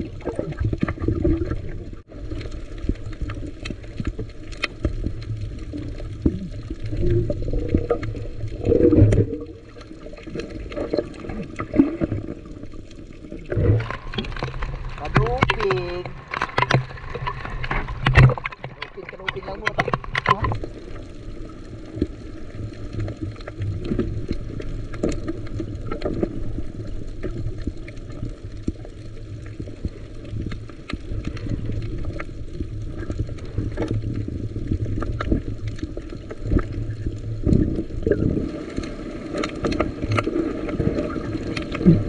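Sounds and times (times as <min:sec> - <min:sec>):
knocks and clicks: 0:13.8 - 0:20.6.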